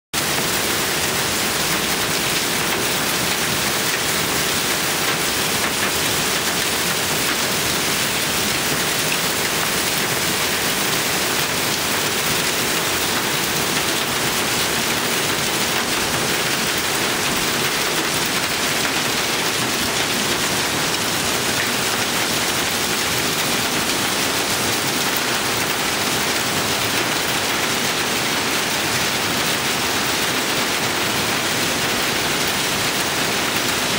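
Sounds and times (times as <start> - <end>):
hail hitting metal and gravel: 0.2 - 33.9.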